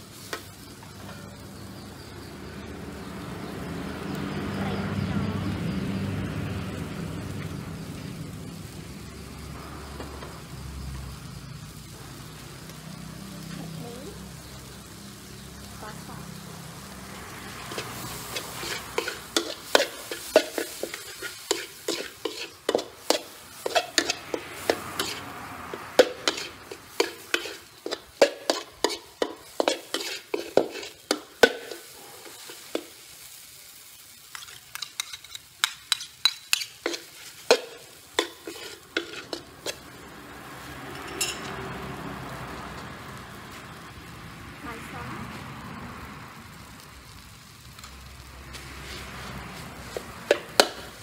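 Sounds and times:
food sizzling: 0:00.0 - 0:51.0
metal spatula scraping a wok: 0:17.4 - 0:40.1, 0:40.9 - 0:41.6, 0:48.5 - 0:51.0.

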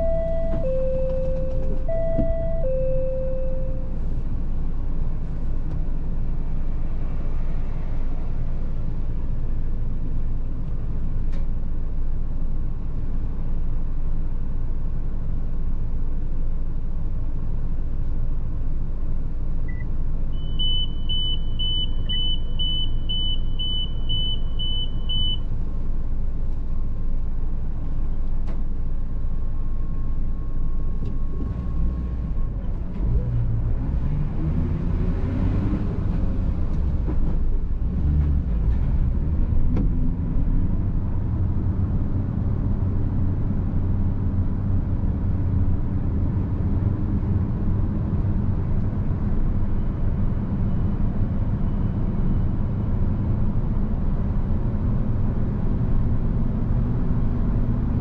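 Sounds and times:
high electronic beeper: 0:00.0 - 0:03.9.

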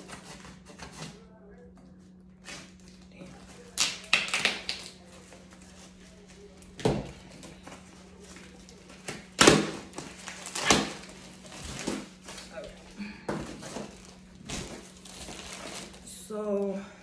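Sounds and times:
knife slitting packing tape: 0:09.4 - 0:12.0.

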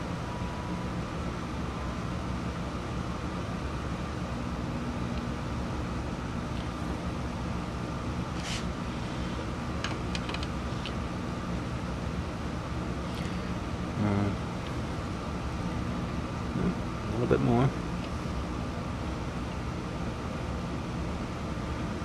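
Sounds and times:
dehumidifier humming: 0:00.0 - 0:22.0
short scrape: 0:08.4 - 0:09.4.

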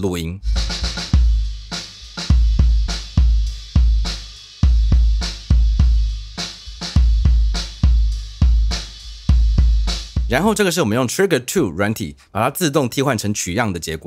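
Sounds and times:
cymbals: 0:00.4 - 0:10.6
bass drum kick thuds: 0:00.5 - 0:10.6.

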